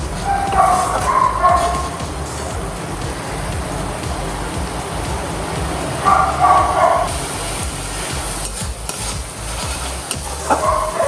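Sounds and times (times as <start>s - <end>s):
paste sizzling in oil: 7.0s - 11.0s
spatula scraping a pan: 8.0s - 11.0s.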